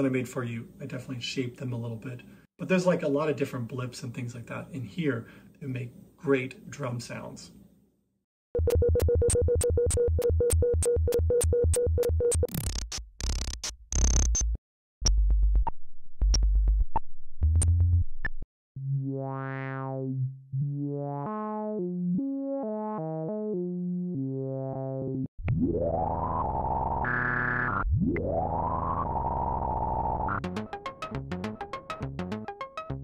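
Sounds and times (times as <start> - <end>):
pulsing synthesizer buzz: 18.8 - 32.6
synthesizer notes stepping in pitch: 18.8 - 33.0.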